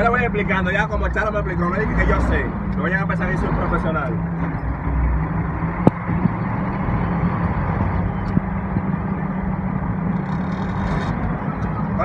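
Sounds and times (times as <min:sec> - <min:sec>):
truck engine running: 0:00.0 - 0:12.0.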